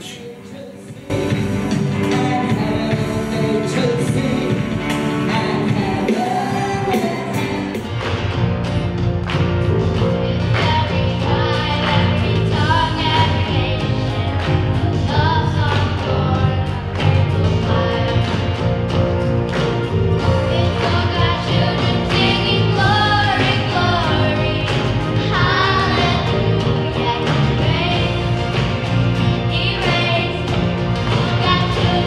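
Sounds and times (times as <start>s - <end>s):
live band with steady beat: 0.0s - 32.0s
music with singing: 0.0s - 32.0s
girls singing together: 9.8s - 18.8s, 20.1s - 28.6s, 29.4s - 32.0s.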